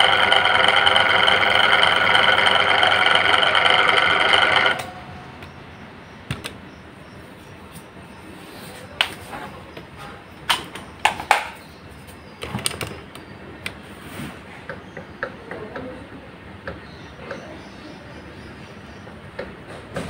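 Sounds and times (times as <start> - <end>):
fan shaft knocking and clicking: 0.0 - 5.5, 14.7 - 16.0, 19.3 - 20.0.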